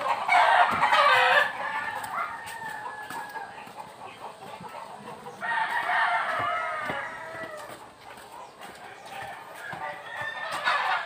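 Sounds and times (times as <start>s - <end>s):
rooster crowing: 0.0s - 3.6s, 5.4s - 7.8s, 9.0s - 11.0s.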